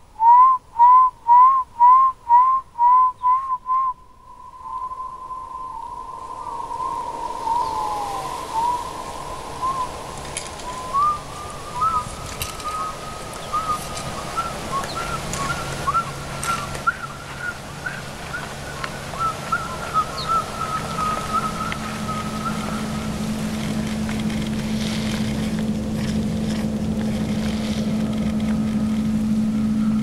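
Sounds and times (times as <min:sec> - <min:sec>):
low hum: 0:00.0 - 0:30.0
steady high whistle tone: 0:00.2 - 0:23.4, 0:28.6 - 0:30.0
bird-like chirps: 0:10.6 - 0:23.1.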